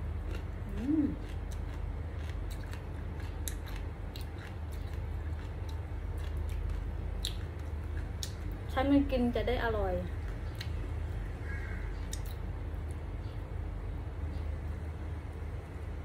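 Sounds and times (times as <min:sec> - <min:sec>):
low steady hum: 0:00.0 - 0:16.0
chewing and lip smacks: 0:00.2 - 0:08.6, 0:12.0 - 0:13.0
person humming: 0:00.7 - 0:01.2.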